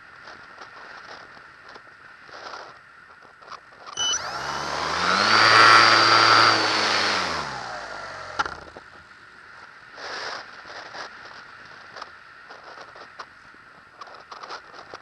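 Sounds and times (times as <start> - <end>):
model plane motor whining: 3.9 - 8.7.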